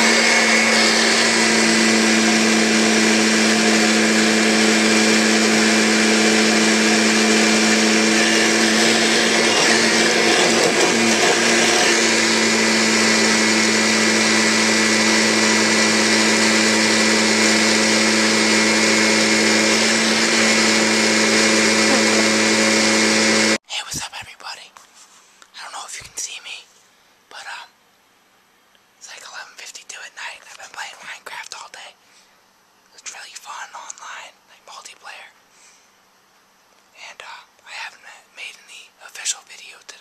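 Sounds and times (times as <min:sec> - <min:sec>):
vacuum cleaner motor drone: 0:00.0 - 0:23.6.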